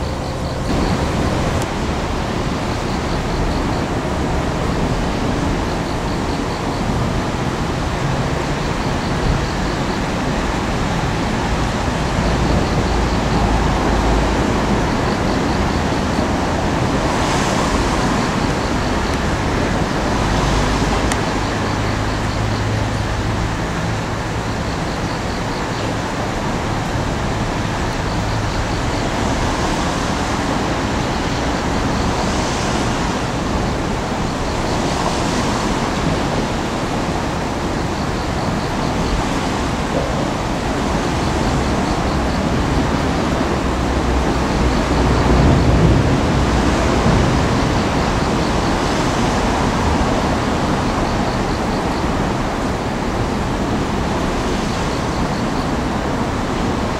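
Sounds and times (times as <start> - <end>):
excavator diesel engine rumbling: 0.0 - 35.0.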